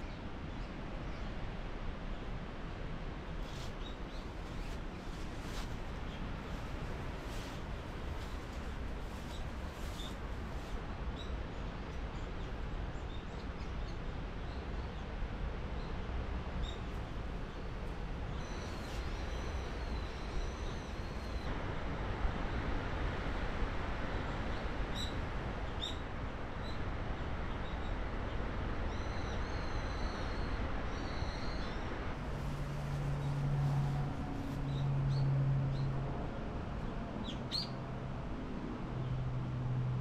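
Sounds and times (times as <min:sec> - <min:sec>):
steady rushing noise: 0:02.7 - 0:11.2, 0:30.4 - 0:37.3.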